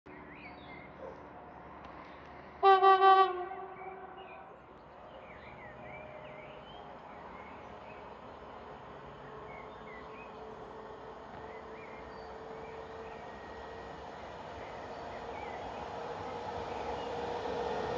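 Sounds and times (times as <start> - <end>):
train hum: 0.2 - 17.9
locomotive horn blast: 2.6 - 4.2.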